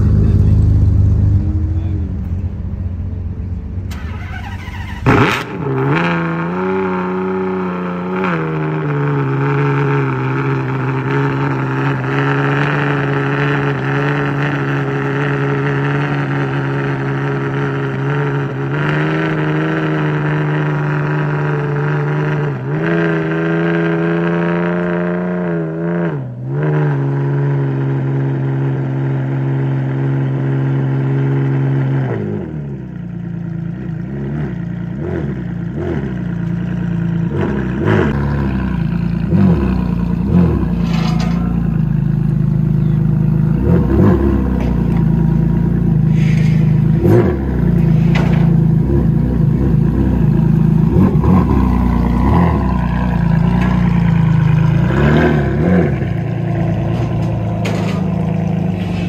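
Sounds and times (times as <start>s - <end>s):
car engine starting and idling: 0.0s - 22.6s, 28.2s - 59.0s.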